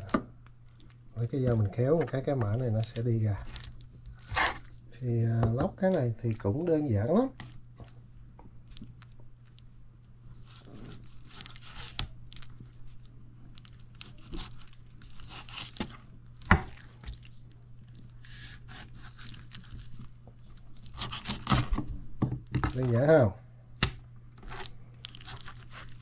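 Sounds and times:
skin and fat tearing: 10.4 - 21.9, 23.8 - 26.0
knife scraping meat off bone: 14.2 - 16.0, 18.2 - 19.8.

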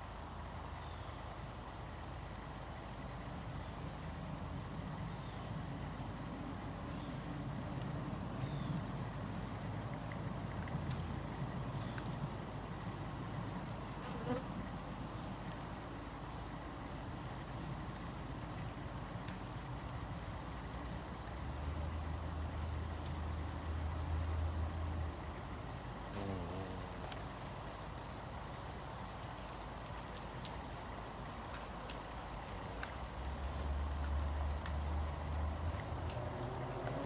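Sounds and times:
insects singing: 8.2 - 32.6
wavering buzz: 16.2 - 31.9.

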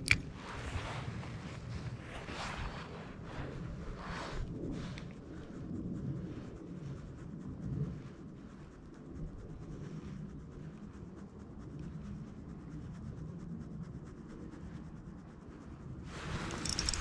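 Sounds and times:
fishing reel whirring: 16.5 - 17.0.

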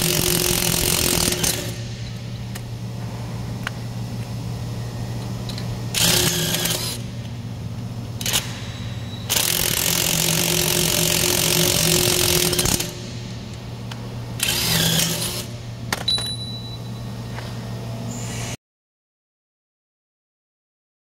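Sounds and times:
harsh loud machine noise: 0.0 - 18.6
machinery humming: 0.0 - 18.6.

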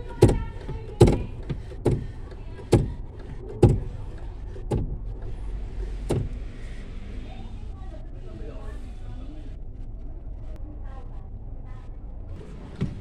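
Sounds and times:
clutch pedal knocking: 0.0 - 6.5.

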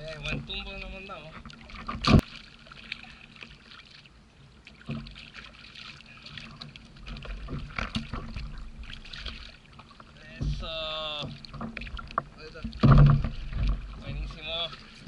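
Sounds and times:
water lapping against a hull: 0.0 - 15.0
soft thumps: 10.3 - 14.4.

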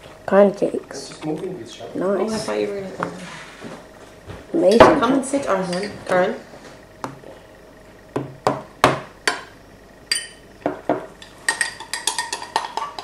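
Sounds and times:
cutlery and crockery clinking: 11.2 - 13.0.

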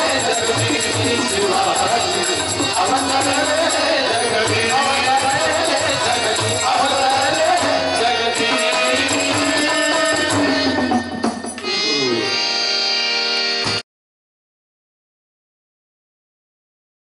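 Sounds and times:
men singing devotional song: 0.0 - 12.1
tabla: 0.0 - 12.8, 13.4 - 13.8
harmonium: 0.0 - 13.9.

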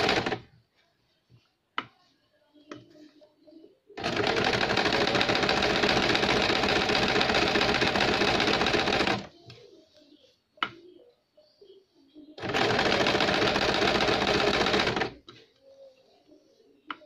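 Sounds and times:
sewing machine stitching: 0.0 - 0.4, 4.0 - 9.3, 12.4 - 15.2.

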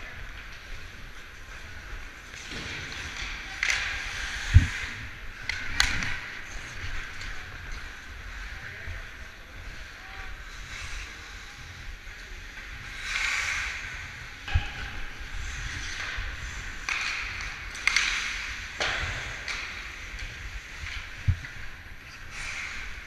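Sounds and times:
skate blades scraping ice: 0.4 - 23.0
wind rumble: 4.0 - 9.8.

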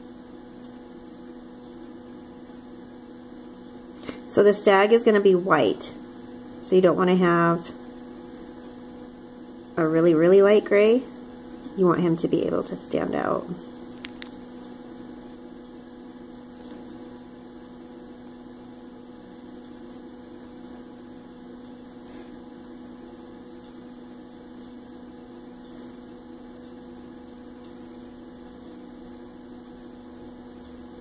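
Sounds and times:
steady electrical hum: 0.0 - 31.0.

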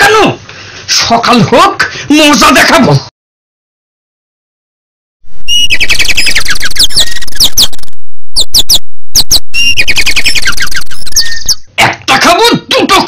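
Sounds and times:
cartoon bird chirps: 5.5 - 11.7.

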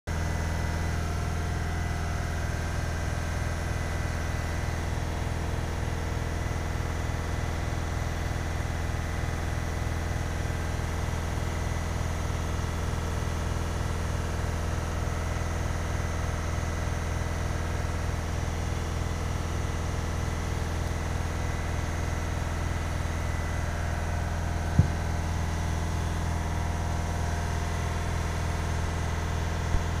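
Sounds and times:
motor humming: 24.7 - 25.4.

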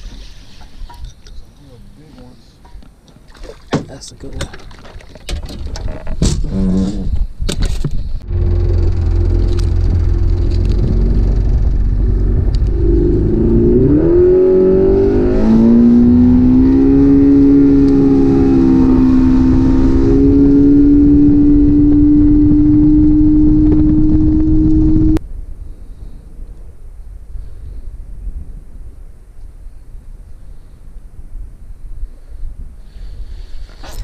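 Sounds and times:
wind rush: 6.9 - 34.0
outboard motor running: 8.2 - 13.2.

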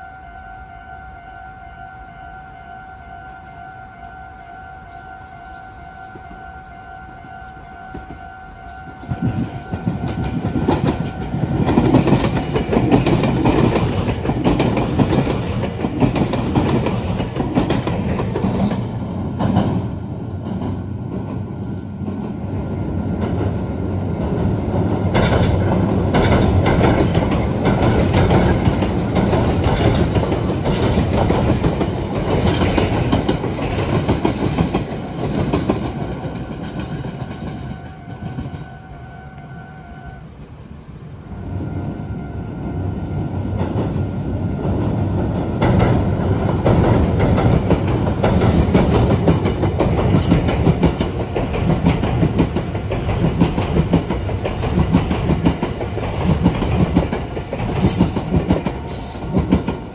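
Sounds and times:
electric train wheels clattering: 7.9 - 38.8, 43.4 - 59.9.

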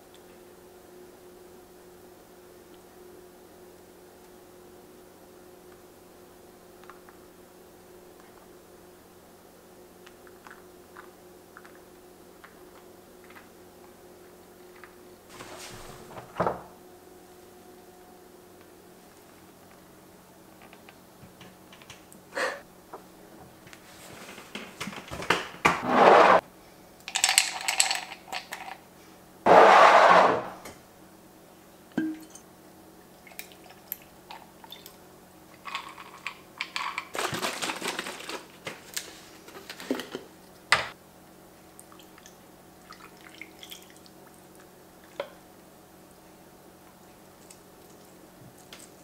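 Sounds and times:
faint room hum: 0.0 - 49.0
short rushes of noise: 29.5 - 30.6.

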